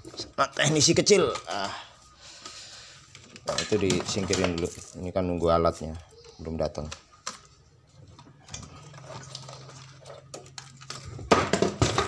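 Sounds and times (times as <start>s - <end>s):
tools clattering on workbench: 3.4s - 5.0s.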